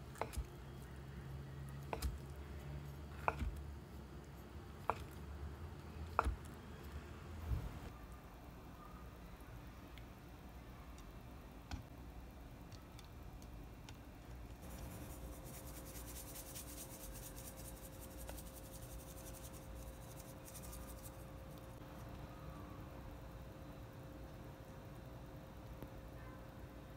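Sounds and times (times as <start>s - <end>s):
salt sprinkling crackles: 14.6s - 21.8s.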